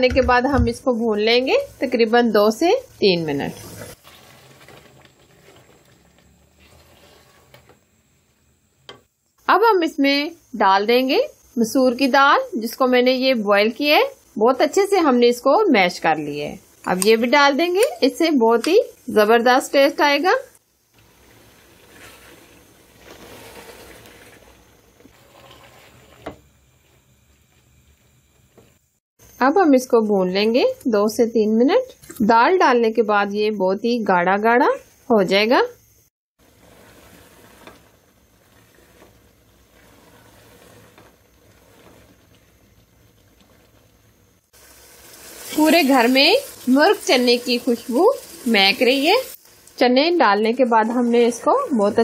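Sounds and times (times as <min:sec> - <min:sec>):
spatula stirring thick curry: 0:03.4 - 0:08.4, 0:20.9 - 0:26.4, 0:36.4 - 0:43.9.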